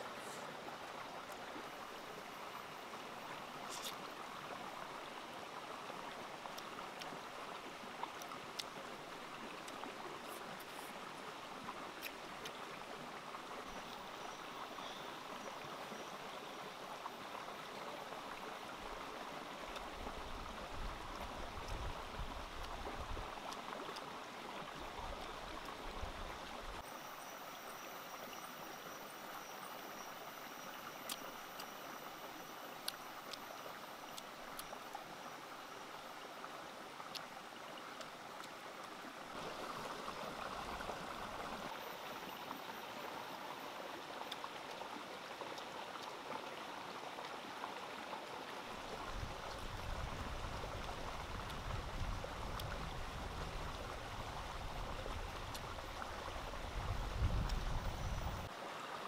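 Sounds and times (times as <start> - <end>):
stream rushing over rocks: 0.0 - 59.0.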